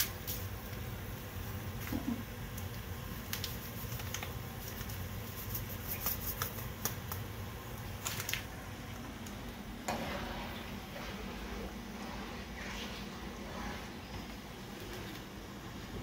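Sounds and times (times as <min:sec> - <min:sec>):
foil packet crinkling: 0:03.1 - 0:08.7.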